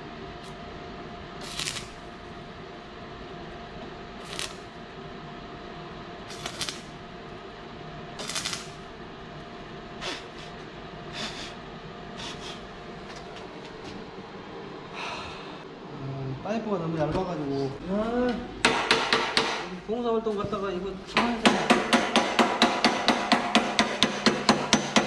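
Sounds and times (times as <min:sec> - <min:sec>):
arc welder crackling: 0:00.0 - 0:05.2, 0:06.2 - 0:07.5, 0:08.1 - 0:11.5
steady hum: 0:00.0 - 0:25.0.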